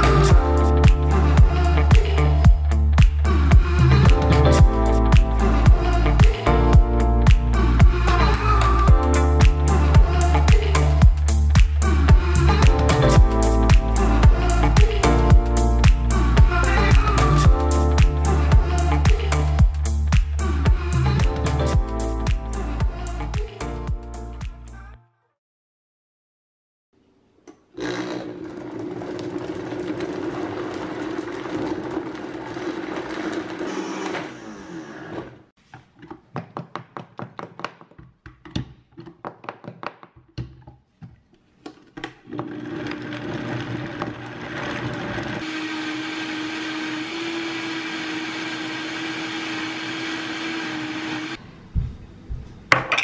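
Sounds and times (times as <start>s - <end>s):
countertop blender running: 27.8s - 35.3s, 42.3s - 51.4s.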